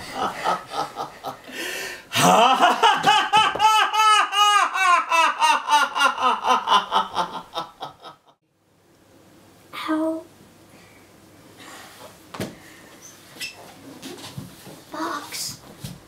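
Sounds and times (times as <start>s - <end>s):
rhythmic villain laugh: 0.0s - 1.4s, 2.1s - 8.4s.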